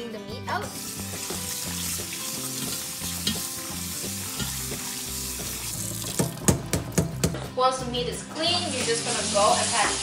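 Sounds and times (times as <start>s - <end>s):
tap water splashing: 0.8s - 7.5s.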